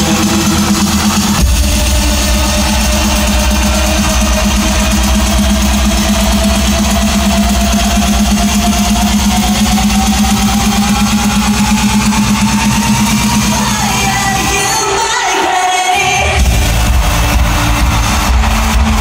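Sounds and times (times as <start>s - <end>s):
synth tone rising in pitch: 0.0s - 14.4s
heavy bass line: 0.0s - 15.0s, 16.1s - 19.0s.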